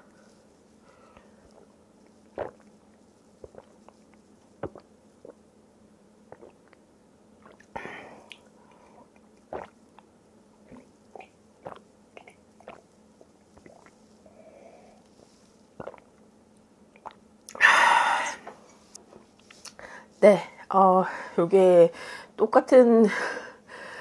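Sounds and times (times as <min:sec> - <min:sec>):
person drinking from a mug: 0:02.3 - 0:02.7, 0:03.4 - 0:03.8, 0:04.6 - 0:05.4, 0:06.3 - 0:06.8, 0:07.4 - 0:09.8, 0:10.7 - 0:12.8, 0:13.6 - 0:14.0, 0:15.8 - 0:16.1
person chewing: 0:02.4 - 0:02.7, 0:03.4 - 0:05.4, 0:06.3 - 0:06.8, 0:09.2 - 0:09.7, 0:10.7 - 0:14.0, 0:15.8 - 0:16.1.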